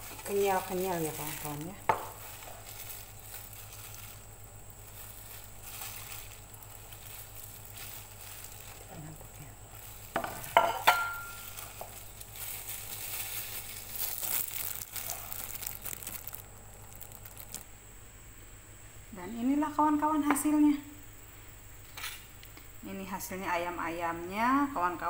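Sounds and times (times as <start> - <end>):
plastic gloves crinkling: 0.0 - 17.8.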